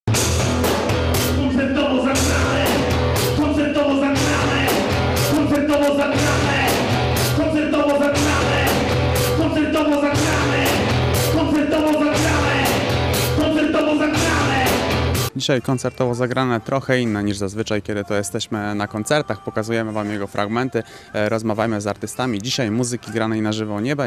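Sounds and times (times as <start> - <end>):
drum kit beat: 0.1 - 15.4
guitar: 0.1 - 17.3
person singing: 1.2 - 15.0, 17.8 - 23.5.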